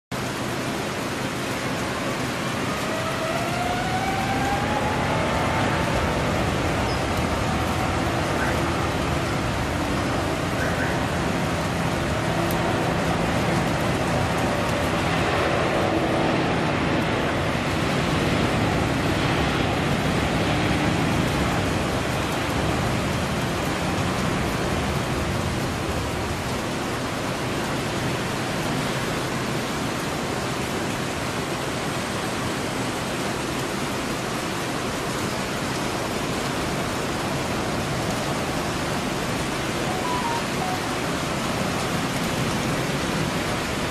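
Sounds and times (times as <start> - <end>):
steady rain-like hiss: 0.1 - 43.9
jet engine roar at takeoff: 0.2 - 43.9.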